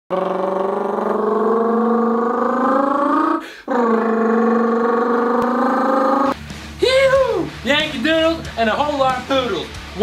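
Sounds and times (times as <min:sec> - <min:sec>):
man imitating engine with mouth: 0:00.1 - 0:06.4.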